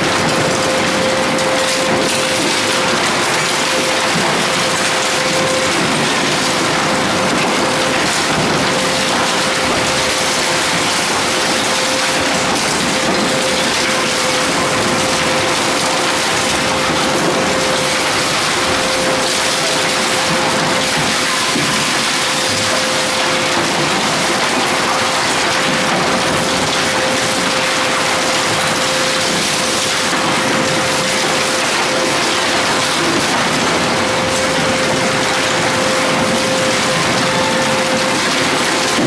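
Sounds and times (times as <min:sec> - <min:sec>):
metal grinding and crunching: 0:00.0 - 0:39.0
steady machine tone: 0:00.0 - 0:39.0.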